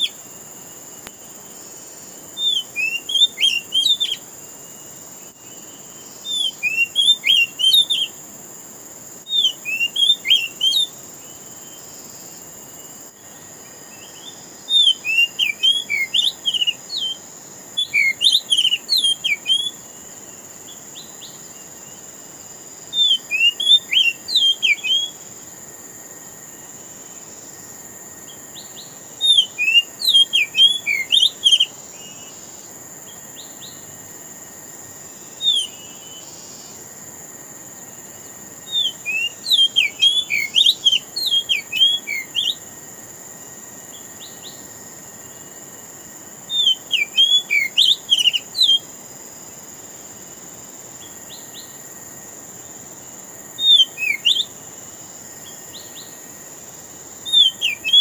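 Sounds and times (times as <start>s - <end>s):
bird singing whistled notes: 2.4s - 4.2s, 5.4s - 8.2s, 9.2s - 11.9s, 13.9s - 20.0s, 22.9s - 25.3s, 28.3s - 32.4s, 35.4s - 36.5s, 38.6s - 42.7s, 46.5s - 48.9s, 53.5s - 54.6s, 57.2s - 58.0s.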